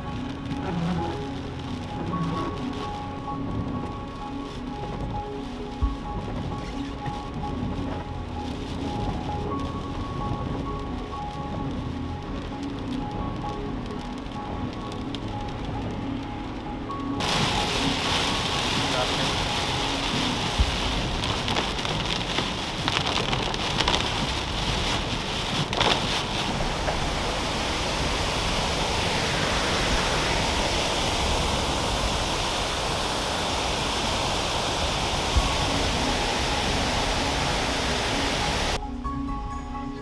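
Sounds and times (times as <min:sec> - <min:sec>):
heavy rain drumming on a car: 0:00.0 - 0:38.8
waterfall rushing: 0:17.2 - 0:22.0, 0:22.6 - 0:38.8
raindrops hitting glass: 0:17.2 - 0:29.1.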